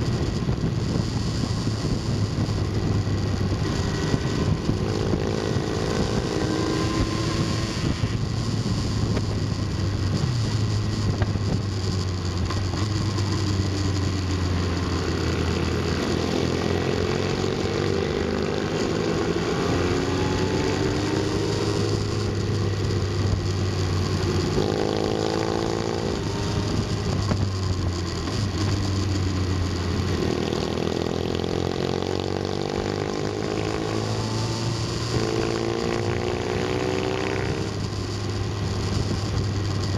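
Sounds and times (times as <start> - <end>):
motorcycle engine revving: 0.0 - 39.9
wind rush on microphone: 0.0 - 39.9.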